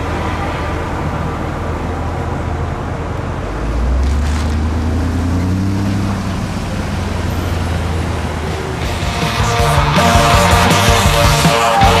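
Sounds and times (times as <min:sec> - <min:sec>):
vehicle engine accelerating: 0:03.3 - 0:12.0.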